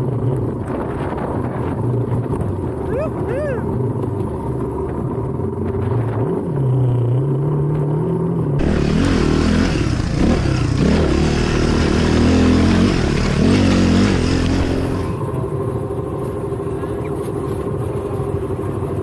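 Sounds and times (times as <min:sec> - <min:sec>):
dirt bike engine revving: 0:06.0 - 0:15.5.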